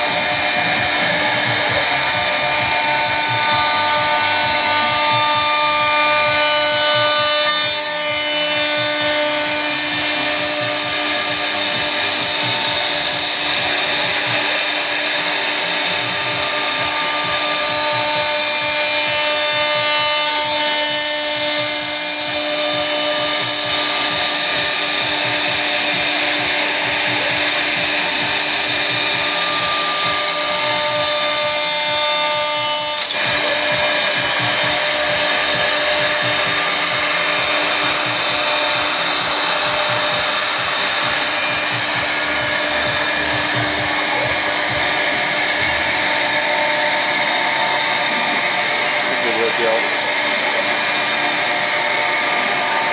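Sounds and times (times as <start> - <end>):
router spindle whine: 0.0 - 52.9
stepper motors humming: 0.0 - 52.9.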